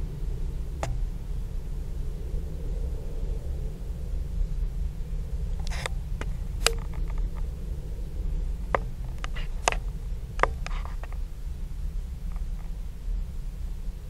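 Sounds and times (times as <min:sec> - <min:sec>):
camera handling rumble: 0:05.6 - 0:07.5, 0:08.7 - 0:11.2.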